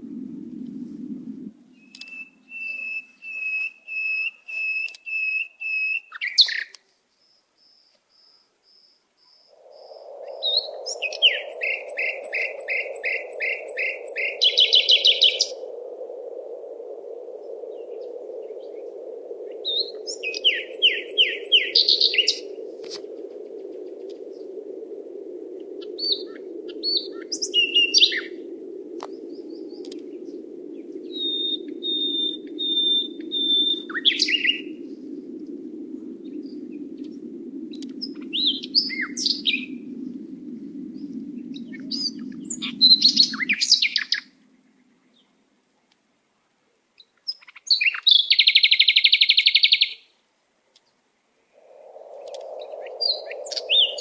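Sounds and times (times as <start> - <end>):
low rushing noise: 0.0 - 2.9, 9.5 - 45.0, 51.3 - 54.0
songbirds singing: 1.6 - 45.5, 47.0 - 50.1, 51.6 - 54.0.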